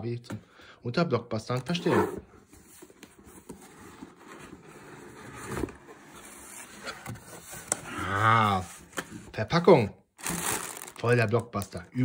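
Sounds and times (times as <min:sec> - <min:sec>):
cardboard scraping and rubbing: 0:01.7 - 0:09.1.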